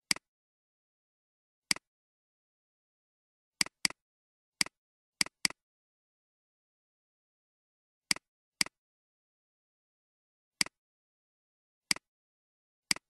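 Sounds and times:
computer mouse clicks: 3.6 - 4.0.

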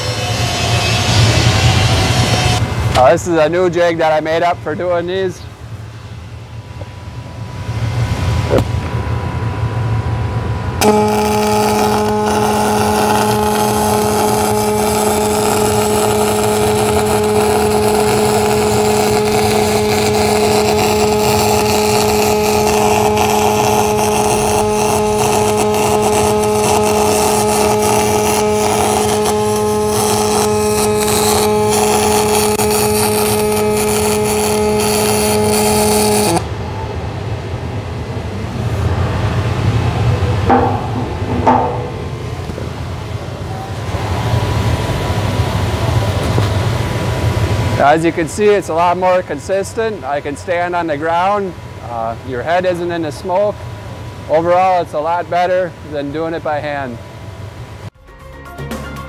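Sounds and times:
steady hum: 0.0 - 58.0
welding arc crackling hiss: 10.8 - 36.4.

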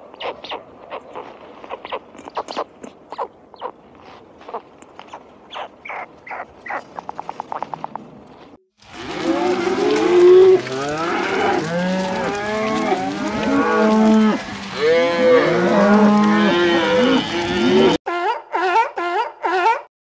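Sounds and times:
cows mooing: 8.8 - 18.0.

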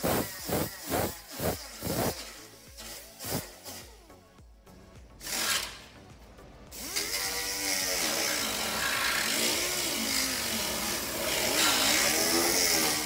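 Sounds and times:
power tool running: 0.0 - 4.0, 6.7 - 13.0.

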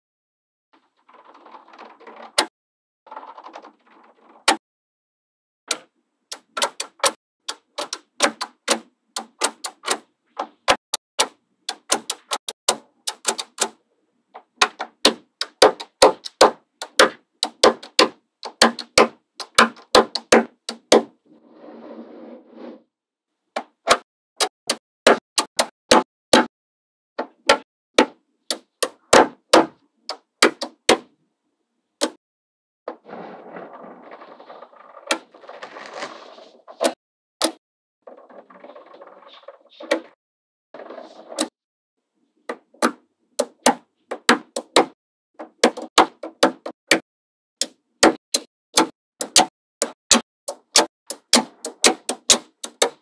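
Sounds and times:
balls rustling: 33.0 - 36.8.

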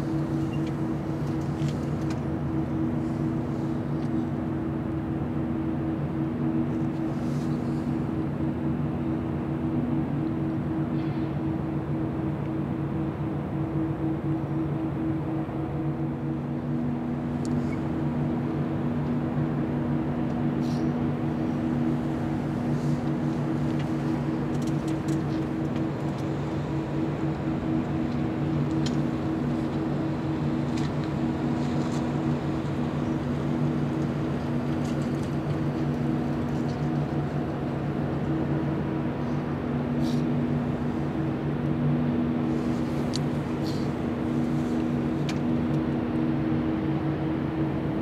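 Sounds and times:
engine drone: 0.0 - 48.0.

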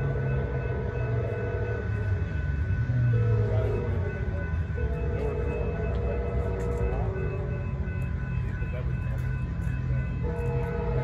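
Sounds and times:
train horn blasts: 0.0 - 7.5, 10.0 - 11.0
train rumbling: 0.0 - 11.0.

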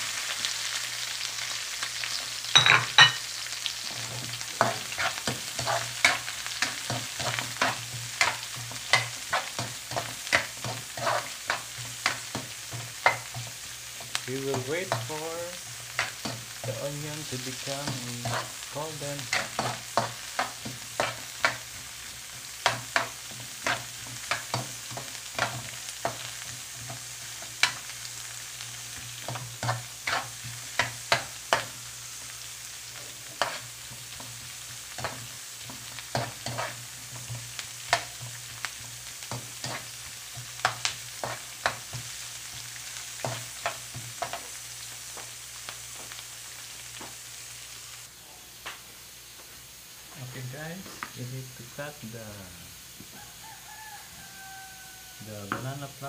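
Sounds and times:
onions frying in oil: 0.0 - 56.0
metal spoon scraping pan: 4.0 - 21.8, 22.6 - 27.9, 28.9 - 31.7, 33.2 - 34.2, 34.9 - 38.4.

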